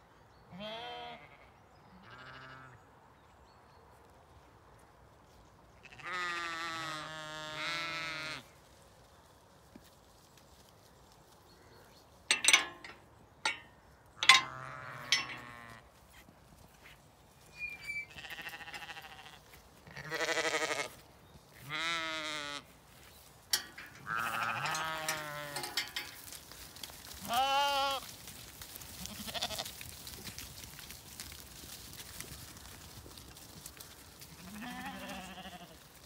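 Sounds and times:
sheep bleating: 0.5s - 2.8s, 5.8s - 8.5s, 18.1s - 21.0s, 21.6s - 22.7s, 24.0s - 25.8s, 27.2s - 28.0s, 29.0s - 29.7s, 34.3s - 35.8s.

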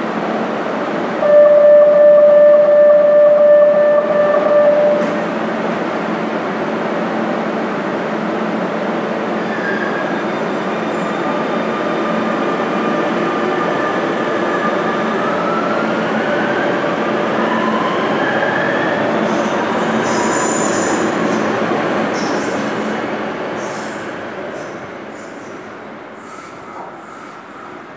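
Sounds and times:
high wheel squeals: 9.4s - 11.4s.

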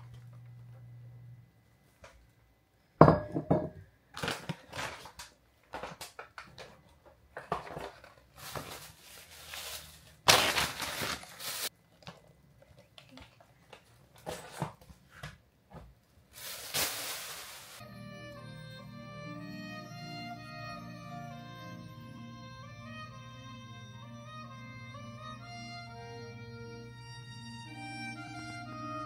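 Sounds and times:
glass bottle knocking on counter: 3.0s - 3.8s
grocery bags rustling: 4.2s - 12.1s, 16.2s - 17.8s.

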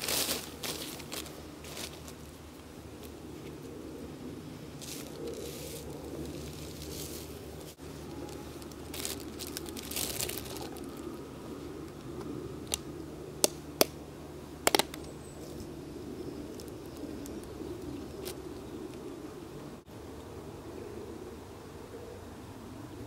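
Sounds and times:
plastic bag crinkling: 4.9s - 11.2s.

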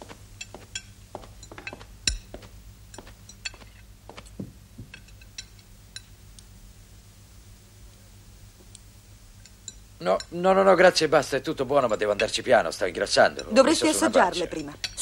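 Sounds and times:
cutlery tapping plates and glasses: 0.4s - 6.1s, 14.4s - 15.0s
dull knock: 4.4s - 5.0s.

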